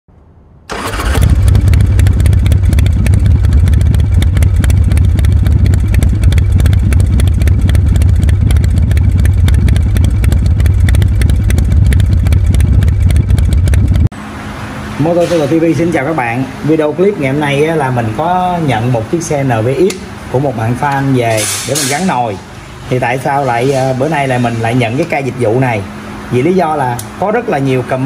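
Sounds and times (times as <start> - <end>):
motorcycle engine running: 0.7 - 15.0.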